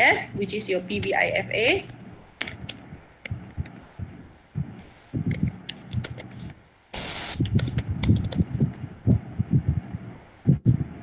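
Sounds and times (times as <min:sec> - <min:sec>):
keyboard typing: 0:07.4 - 0:09.0.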